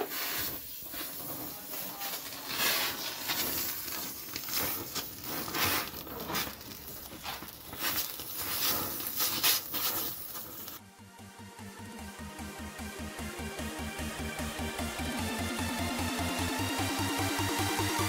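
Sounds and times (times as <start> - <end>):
crackles and pops of melting metal: 0.0 - 10.8
welding torch flame hissing: 0.0 - 10.8.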